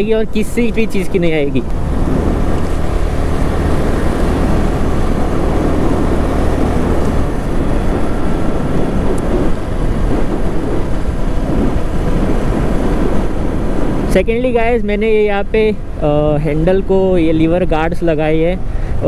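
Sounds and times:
wind rushing over microphone: 0.0s - 19.0s
motorcycle engine: 1.6s - 14.2s.

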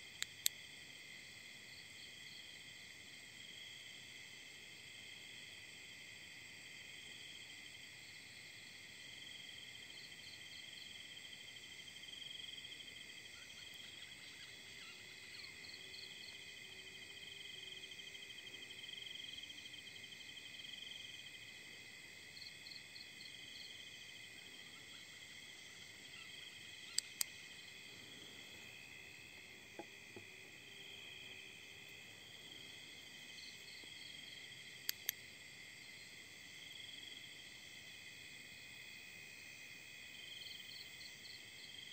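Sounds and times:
crickets chirring: 0.0s - 41.9s
sharp clicks: 26.9s - 27.4s, 34.8s - 35.2s.

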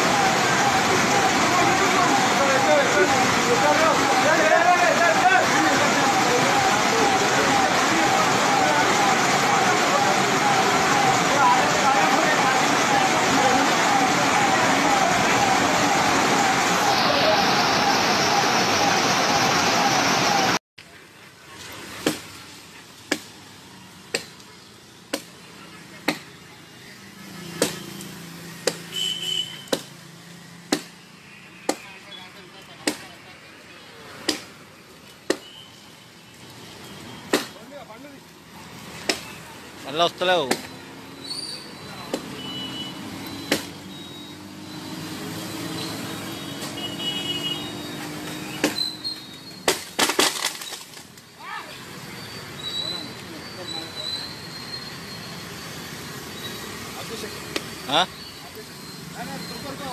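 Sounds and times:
faint voices: 0.0s - 22.0s
axe chopping wood: 22.0s - 22.3s, 23.1s - 23.3s, 24.1s - 24.3s, 28.6s - 28.8s, 30.7s - 31.0s, 34.2s - 34.5s, 37.3s - 37.6s, 40.5s - 40.7s, 43.5s - 43.7s, 48.6s - 48.9s, 49.6s - 50.8s
branches snapping: 48.2s - 51.3s.

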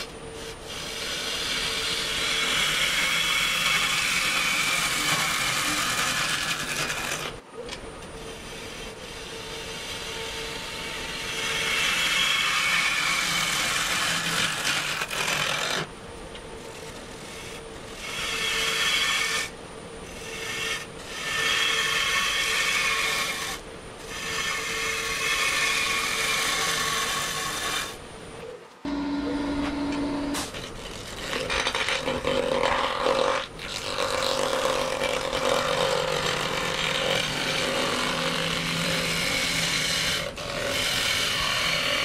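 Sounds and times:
gouge cutting wood on a lathe: 0.0s - 7.4s, 8.2s - 15.9s, 16.6s - 28.0s, 30.2s - 42.0s
lathe motor hum: 28.8s - 42.0s.

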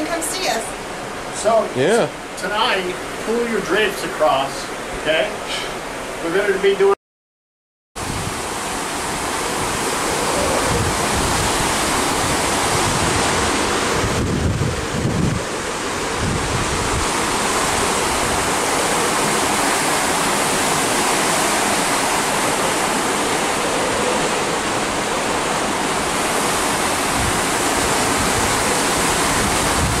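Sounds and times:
churning seawater rushing: 8.0s - 30.0s
wind buffeting microphone: 8.0s - 30.0s.

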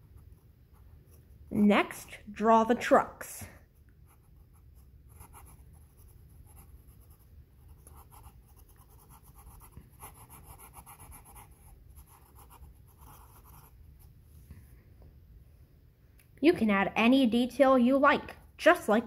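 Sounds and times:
pencil scratching on paper: 4.0s - 13.8s.

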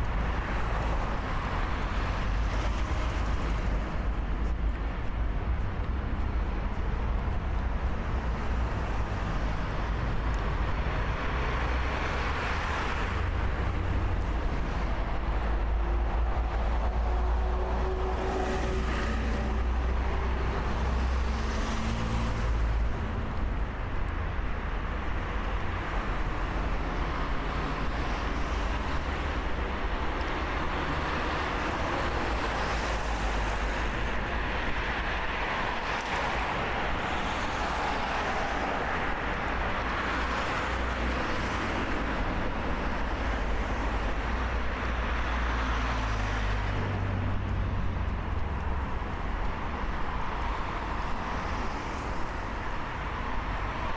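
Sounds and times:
cars passing: 0.0s - 53.9s
rumble of road vehicles: 0.0s - 53.9s.

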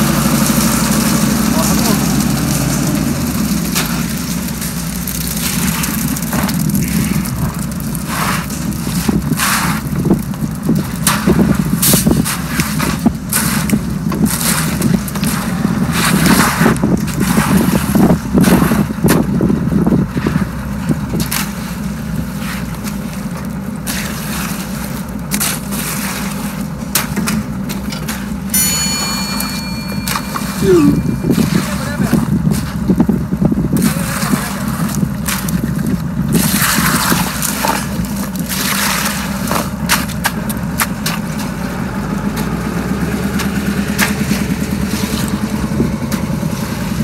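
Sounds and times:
wet concrete pouring: 0.0s - 28.5s, 30.7s - 47.0s
truck engine running: 0.0s - 47.0s
hoes scraping through concrete: 33.7s - 41.2s.

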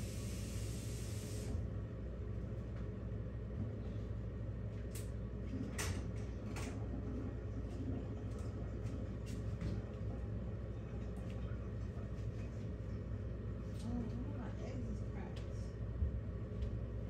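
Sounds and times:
high hiss: 0.0s - 1.6s
low background hum: 0.0s - 17.0s.

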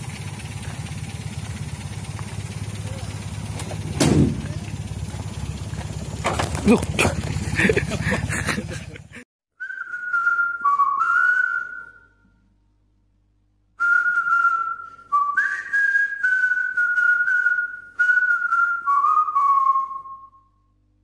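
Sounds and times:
person whistling a tune: 9.6s - 12.2s, 13.8s - 20.6s.

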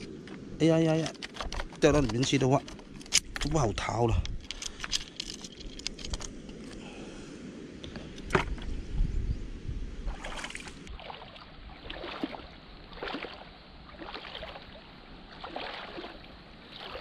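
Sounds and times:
splashing footsteps in shallow water: 10.1s - 17.0s.

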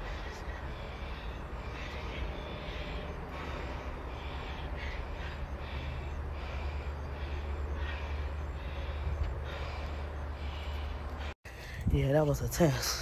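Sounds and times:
wind rumble on microphone: 11.6s - 12.6s.

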